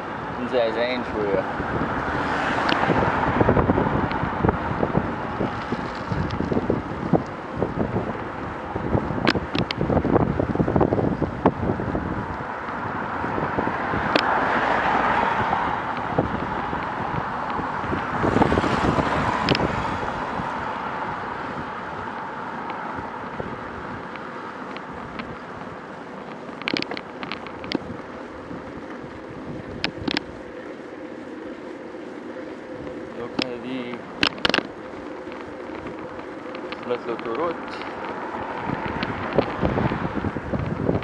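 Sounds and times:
cars passing: 0.0s - 41.0s
wind buffeting microphone: 0.0s - 41.0s.

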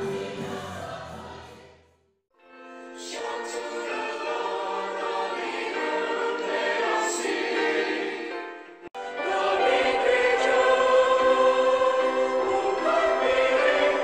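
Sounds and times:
choir singing in harmony: 0.0s - 1.9s, 3.0s - 14.0s.

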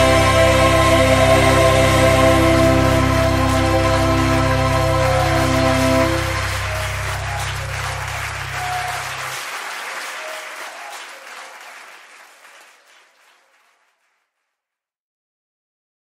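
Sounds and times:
band holding last chord: 0.0s - 8.6s
audience applause: 0.0s - 14.1s.

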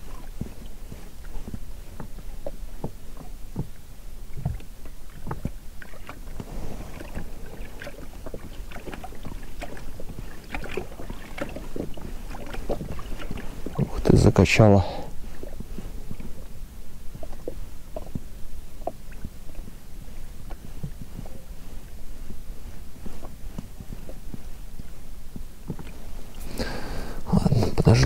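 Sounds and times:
waves lapping against rubber boat: 0.0s - 28.0s.

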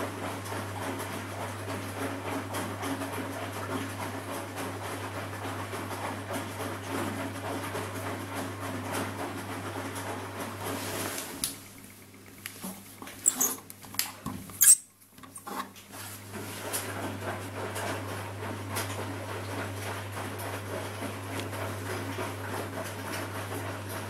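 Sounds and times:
washing machine motor hum: 0.0s - 24.0s
laundry sloshing: 10.4s - 11.4s.

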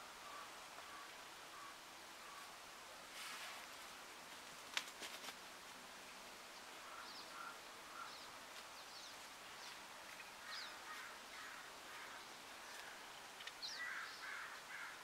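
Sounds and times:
harsh lower bird calls: 6.8s - 15.0s.

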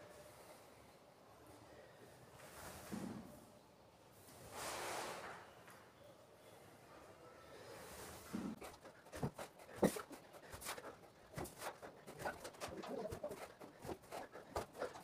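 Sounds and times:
hands and feet thumping on floor: 8.4s - 15.0s.

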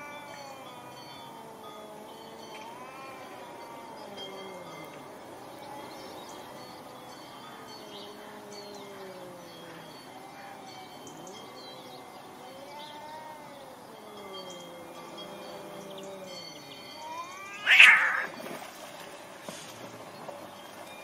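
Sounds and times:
cats yowling: 0.0s - 6.2s, 7.6s - 18.4s
faint bird chirps: 5.6s - 18.3s.

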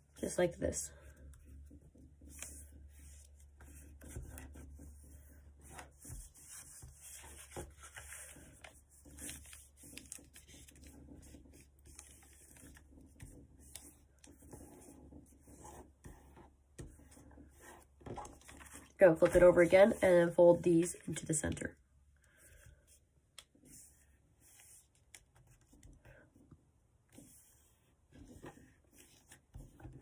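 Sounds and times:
paper rustling as folded: 5.2s - 15.7s, 17.6s - 20.0s.

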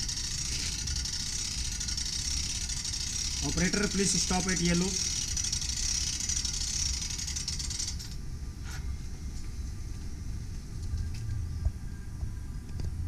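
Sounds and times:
spring starter winding rattle: 0.0s - 8.2s.

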